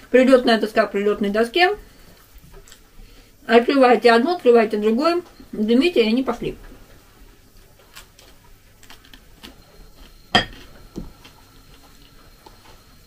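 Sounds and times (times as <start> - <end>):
fork clinking against ceramic bowl: 10.3 - 10.6.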